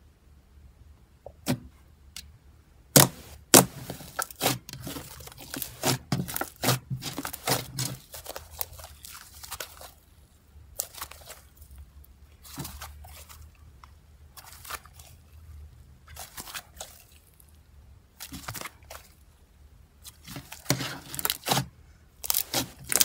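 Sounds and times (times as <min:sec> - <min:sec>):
slime popping and crackling: 0:03.0 - 0:10.0, 0:20.1 - 0:21.6, 0:22.2 - 0:23.0.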